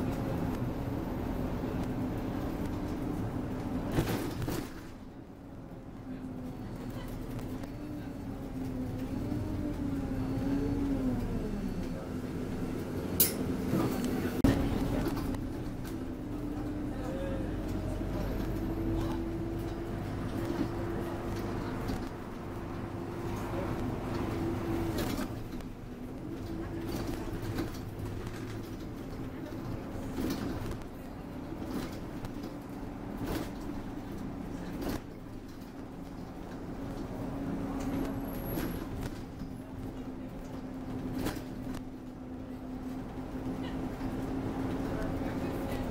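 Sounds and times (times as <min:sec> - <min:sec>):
bus engine droning: 0:00.0 - 0:45.9.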